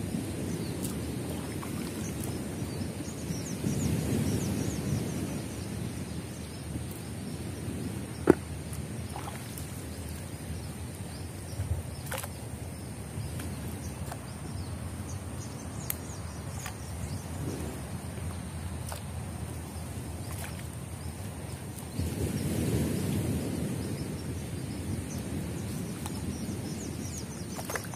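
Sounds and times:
water sloshing and dripping: 0.7s - 2.8s, 8.1s - 15.1s, 15.9s - 22.2s, 27.2s - 27.9s.

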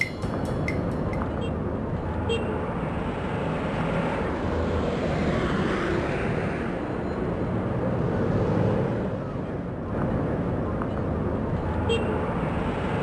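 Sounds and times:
steady rushing noise: 0.0s - 6.7s.

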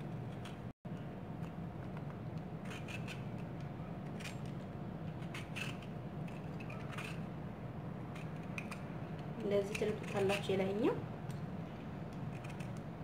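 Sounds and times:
steady low hum: 0.0s - 13.0s
peeler scraping orange peel: 5.1s - 7.3s, 9.5s - 10.7s, 12.1s - 12.9s.

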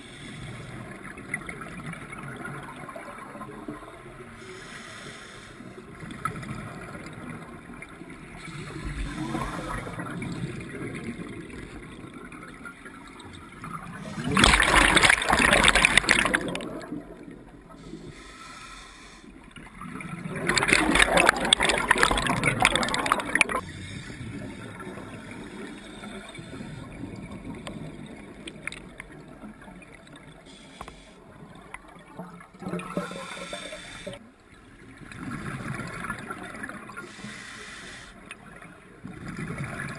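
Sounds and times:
exhaled bubbles rushing underwater: 0.6s - 4.4s, 5.9s - 17.8s, 19.5s - 30.5s, 31.2s - 37.2s, 38.4s - 39.9s
small bubble noises: 5.8s - 18.1s, 19.5s - 37.2s
low wash of water: 5.9s - 37.4s.

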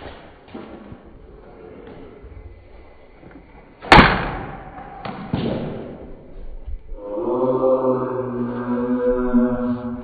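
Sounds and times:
thuds: 3.8s - 6.1s.

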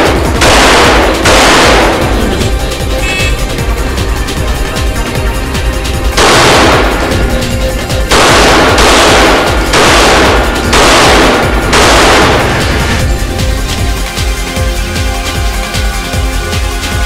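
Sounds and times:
pistol shots: 0.0s - 2.5s, 6.1s - 13.0s
electronic background music: 0.0s - 17.0s.

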